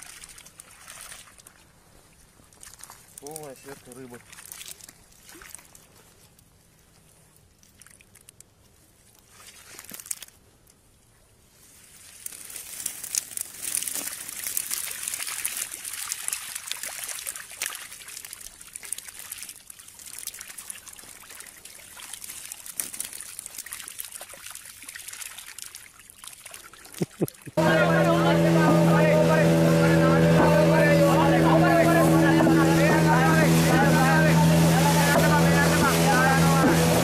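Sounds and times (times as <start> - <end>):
water trickling and dripping: 0.0 - 1.6, 12.2 - 27.6
fish flapping on mud: 12.1 - 27.6.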